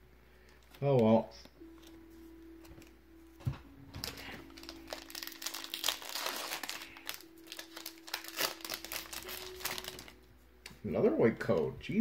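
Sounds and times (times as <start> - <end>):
foil wrapper crinkling: 4.0 - 10.3.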